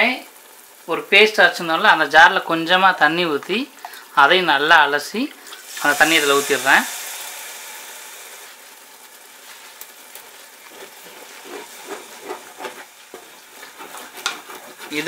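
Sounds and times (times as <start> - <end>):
paste sizzling in hot oil: 0.0 - 15.0
wooden spatula scraping pot: 9.4 - 15.0.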